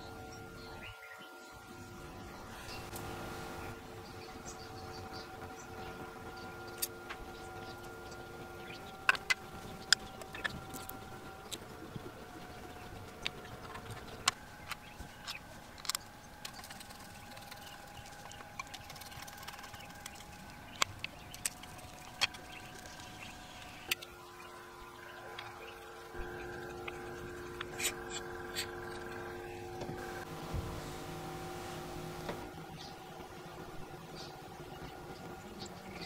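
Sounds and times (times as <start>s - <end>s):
faint steady hum: 0.0s - 36.0s
small metal and plastic parts clicking: 13.2s - 23.0s.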